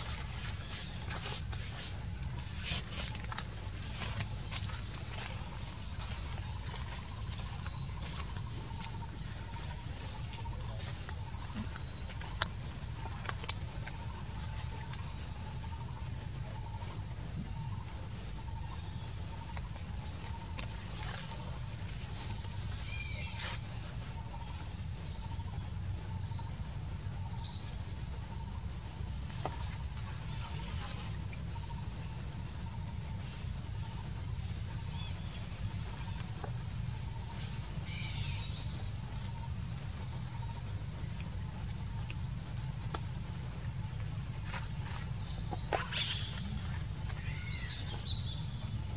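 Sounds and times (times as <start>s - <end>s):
high-pitched insect drone: 44.4s - 48.9s.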